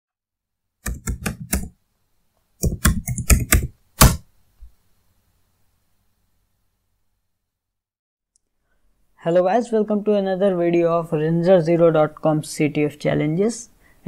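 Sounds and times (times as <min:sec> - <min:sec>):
keyboard typing: 0:00.8 - 0:01.7, 0:02.6 - 0:04.2.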